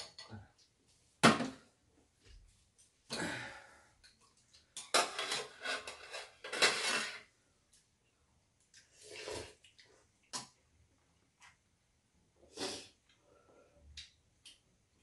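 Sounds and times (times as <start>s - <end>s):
person slurping noodles: 9.0s - 9.6s, 12.5s - 13.0s.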